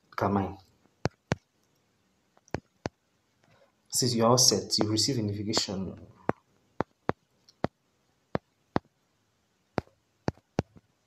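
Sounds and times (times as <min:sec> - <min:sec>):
fingertip taps on touchscreen: 0:05.6 - 0:07.8, 0:08.4 - 0:08.9, 0:09.8 - 0:10.9.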